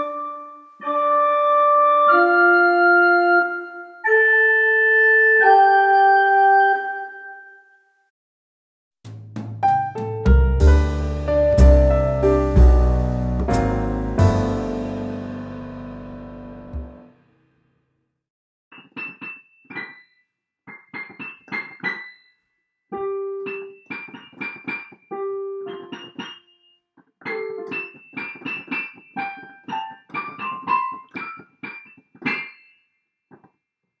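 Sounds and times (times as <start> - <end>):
keyboard piano melody: 0.0 - 7.6, 9.6 - 17.2, 18.8 - 20.1, 20.7 - 22.3, 22.9 - 32.8.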